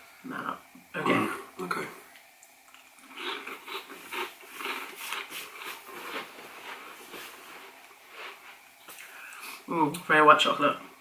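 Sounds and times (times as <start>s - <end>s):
crunchy biscuit chewing: 2.7s - 7.2s.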